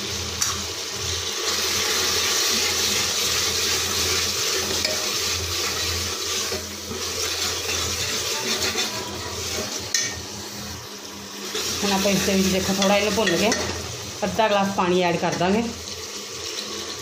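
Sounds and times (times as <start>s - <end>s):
masala sizzling in hot oil: 0.0s - 17.0s
metal ladle scraping pot: 4.5s - 10.2s.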